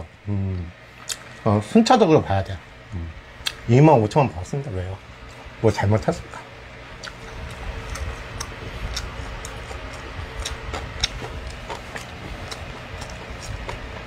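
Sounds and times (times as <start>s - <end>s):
low steady hum: 0.0s - 14.0s
person chewing food: 6.9s - 14.0s.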